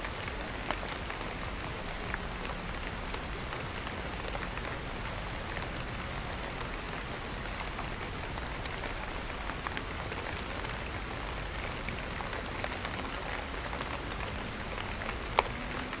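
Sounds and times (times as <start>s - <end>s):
steady rain hiss: 0.0s - 16.0s
raindrop clicks: 6.4s - 16.0s.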